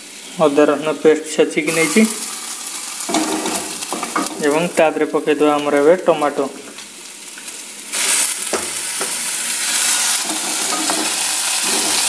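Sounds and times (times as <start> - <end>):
food sizzling in frying pan: 0.0 - 12.0
spatula knocking pan: 3.1 - 4.4, 10.3 - 12.0.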